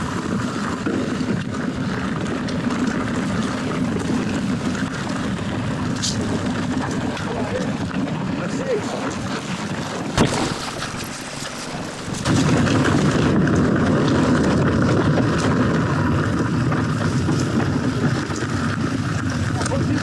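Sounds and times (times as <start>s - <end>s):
bike tyres rattling on rocky trail: 0.0s - 20.0s
wind on microphone: 0.0s - 20.0s
sharp knock: 10.2s - 12.4s.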